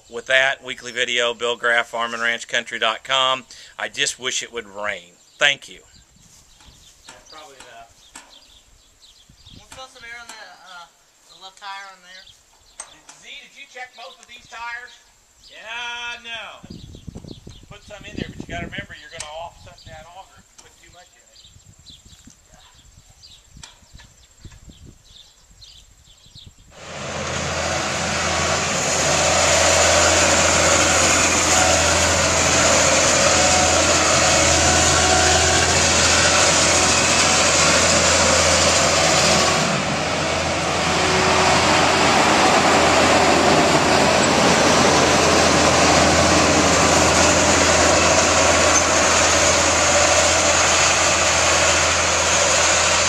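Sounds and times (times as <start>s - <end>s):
heavy farm machinery running: 26.8s - 53.0s.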